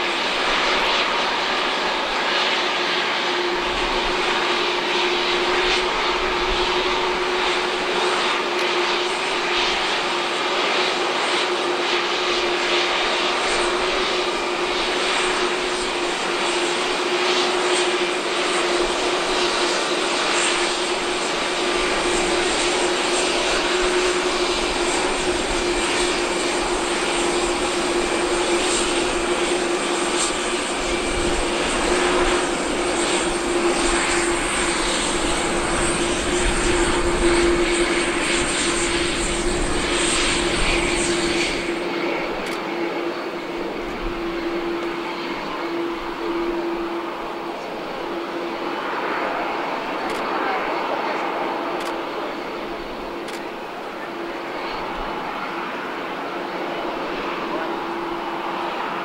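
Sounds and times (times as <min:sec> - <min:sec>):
jet engines roaring: 0:00.0 - 0:59.0.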